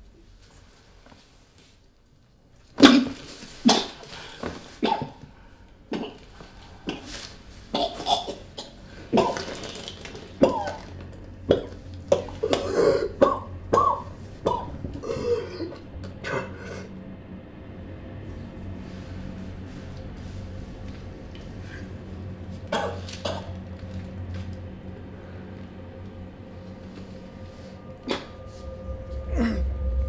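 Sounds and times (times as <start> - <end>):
person coughing hard: 2.8 - 4.0, 4.8 - 5.2, 7.7 - 9.7, 10.4 - 10.9, 11.5 - 16.9, 22.7 - 23.5.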